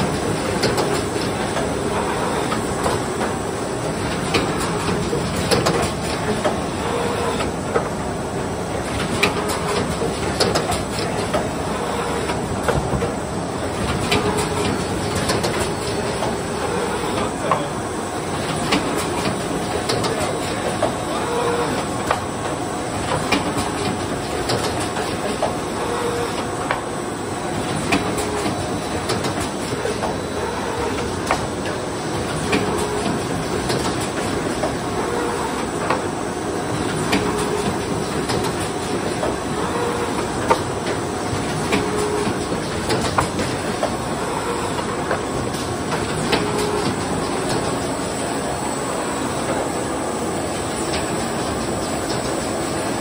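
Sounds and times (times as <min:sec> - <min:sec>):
sharp clicks and knocks: 0:13.8 - 0:16.4, 0:22.0 - 0:25.6, 0:41.6 - 0:44.0.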